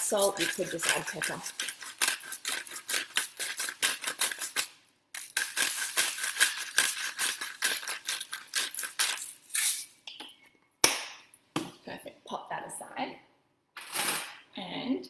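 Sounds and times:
salt and pepper grinders grinding: 0.0s - 10.0s.

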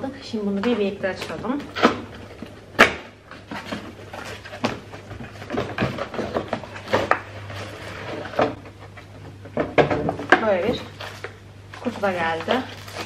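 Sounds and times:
packaging scraping and rustling: 3.3s - 9.1s, 10.5s - 13.0s.

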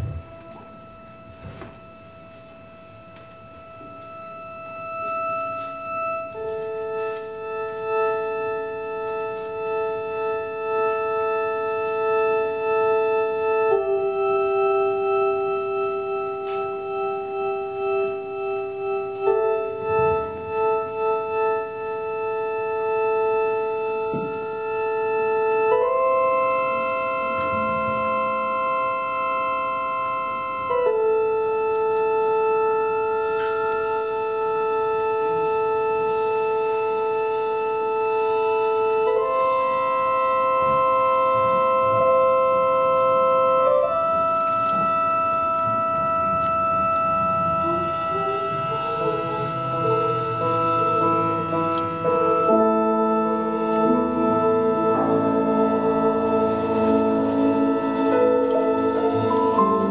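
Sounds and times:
ensemble playing held chords: 0.0s - 59.9s.

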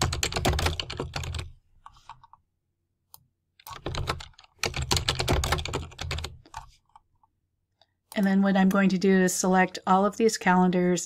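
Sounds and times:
computer keyboard typing: 0.0s - 2.4s, 3.6s - 7.0s.

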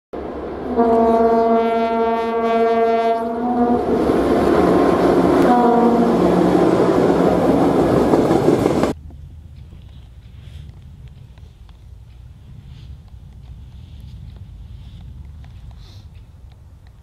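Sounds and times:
train running past: 0.2s - 17.0s
locomotive horn blast: 0.5s - 6.9s.

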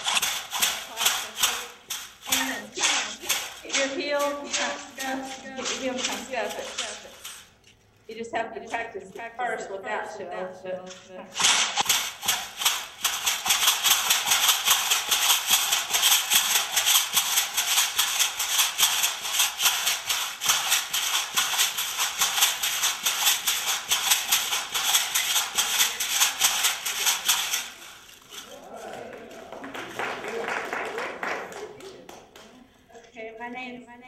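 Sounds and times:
leg rattles rattling with steps: 0.0s - 9.3s, 10.8s - 28.6s.

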